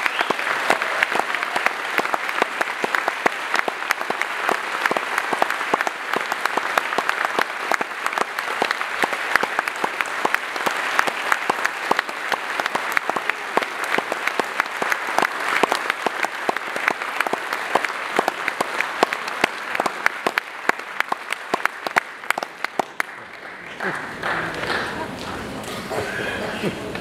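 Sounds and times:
audience applauding: 0:00.0 - 0:27.0.

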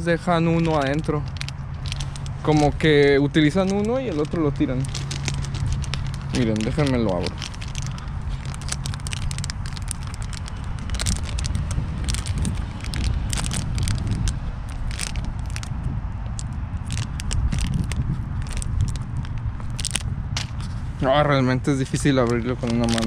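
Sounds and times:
foil pouch crinkling: 0:00.0 - 0:20.7, 0:21.8 - 0:23.0
low microphone rumble: 0:00.0 - 0:23.0.

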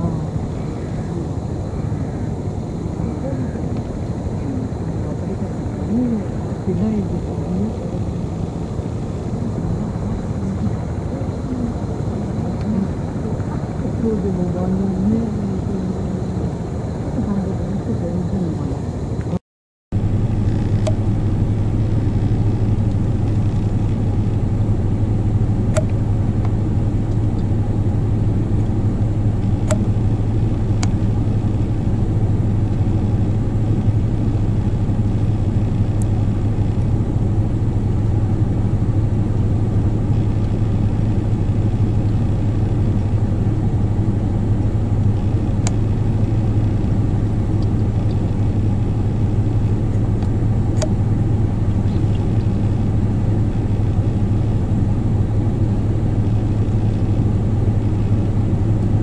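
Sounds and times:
vehicle engine idling: 0:00.0 - 0:59.0
sharp clicks: 0:50.2 - 0:51.0.

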